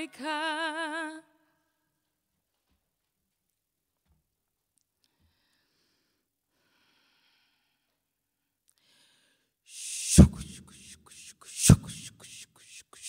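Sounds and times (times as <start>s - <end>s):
breath thump on microphone: 10.1s - 10.9s, 11.6s - 12.1s.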